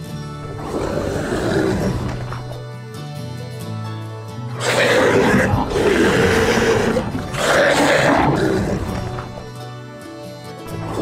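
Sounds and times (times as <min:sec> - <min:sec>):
background music: 0:00.0 - 0:11.0
rough monster roar: 0:00.4 - 0:02.6, 0:04.6 - 0:09.5, 0:10.7 - 0:11.0.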